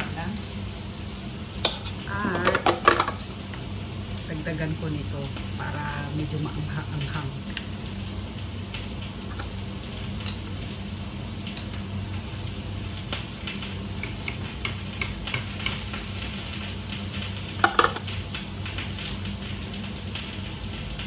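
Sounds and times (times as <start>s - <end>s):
spoon stirring in a metal pot: 1.6s - 3.2s.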